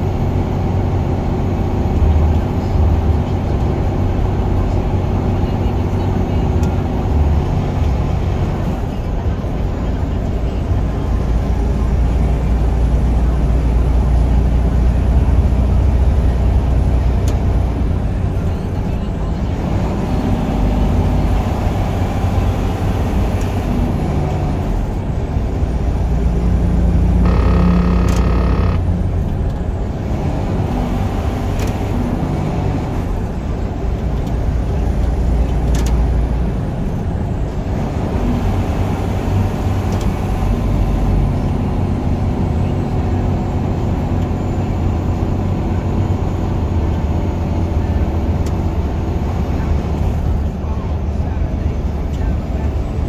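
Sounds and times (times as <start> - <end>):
truck engine and road drone: 0.0 - 53.0
multi-pitch tone: 27.2 - 29.0.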